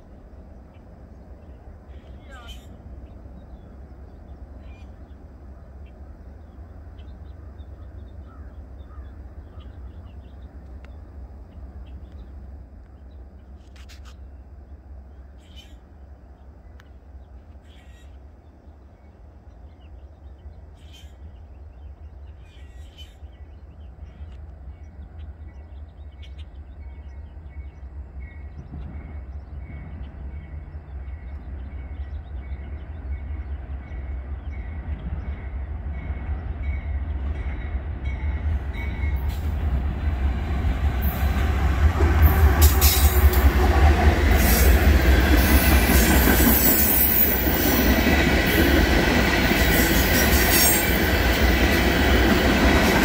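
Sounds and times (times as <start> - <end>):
distant diesel train rumble: 0.0 - 53.0
short bird calls: 1.9 - 3.7, 17.6 - 18.2.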